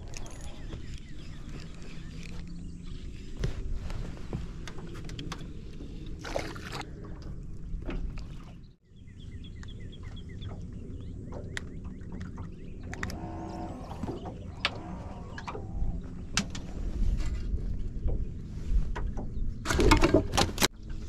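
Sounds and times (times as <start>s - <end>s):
water rumble: 0.0s - 21.0s
wind: 0.0s - 21.0s.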